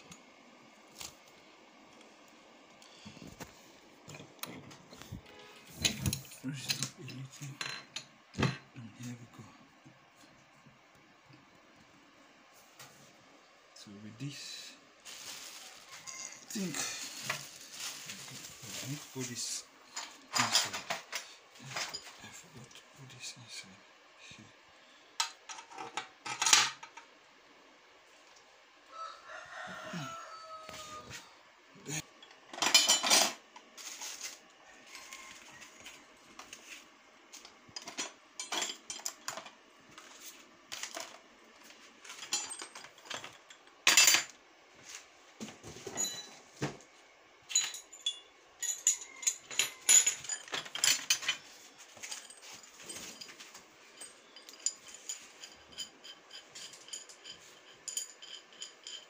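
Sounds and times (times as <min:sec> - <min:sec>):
metal parts knocking and clattering: 0:20.0 - 0:22.2, 0:47.5 - 0:59.0.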